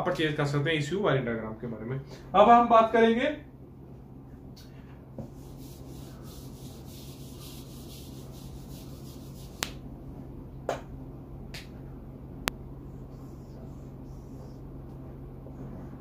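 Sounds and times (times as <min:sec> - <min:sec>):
eraser rubbing whiteboard: 0:05.2 - 0:09.8.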